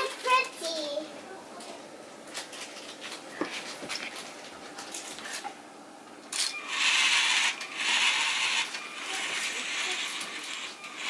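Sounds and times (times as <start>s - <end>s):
robot motors whirring: 6.7s - 11.0s.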